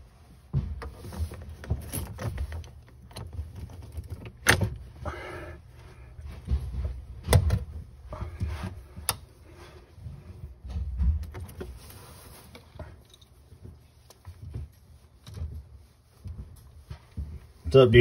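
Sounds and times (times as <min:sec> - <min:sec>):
screwdriver knocks and clatter: 0:00.8 - 0:04.8, 0:07.2 - 0:07.8.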